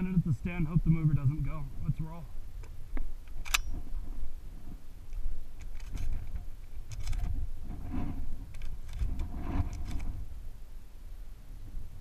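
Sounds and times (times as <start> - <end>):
wind buffeting microphone: 0.0 - 10.5
gear clicking and rustling: 5.6 - 10.2.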